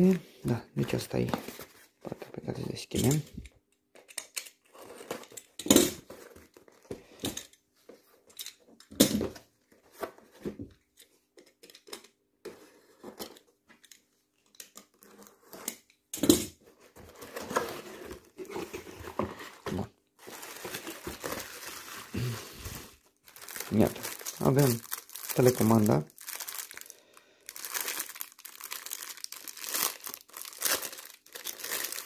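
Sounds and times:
cardboard scraping and knocking: 17.0s - 19.8s
bubble wrap crinkling: 20.2s - 32.0s.

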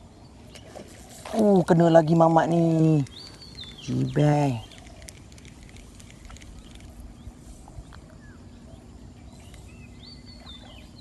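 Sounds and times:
faint bird calls: 2.5s - 11.0s.

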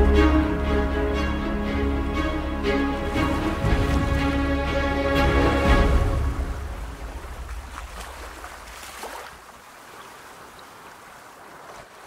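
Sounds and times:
music low rumble: 0.0s - 8.8s
sea surf: 0.0s - 12.0s.

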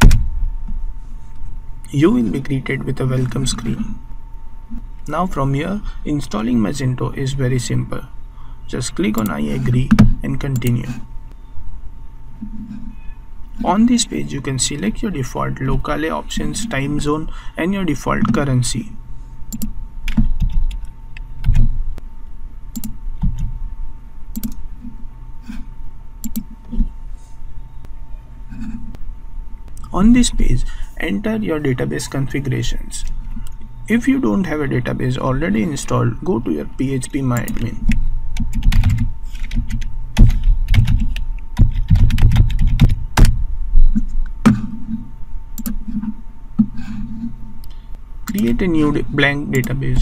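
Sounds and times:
faint hum: 0.0s - 50.0s
keyboard typing clicks: 19.5s - 21.7s, 22.7s - 23.5s, 24.3s - 24.6s, 26.2s - 26.5s, 37.4s - 43.4s, 45.6s - 45.8s, 47.6s - 48.6s.

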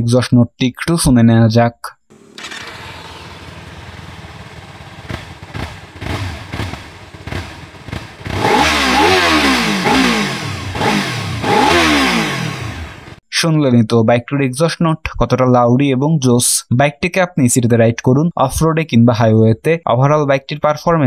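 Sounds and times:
motorcycle engine idling and revving: 2.1s - 13.2s.

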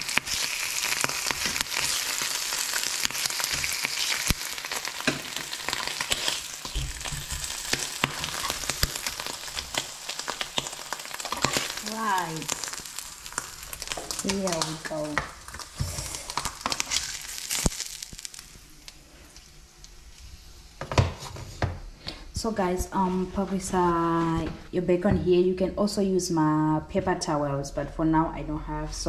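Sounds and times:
bacon sizzling in a frying pan: 0.0s - 21.3s.

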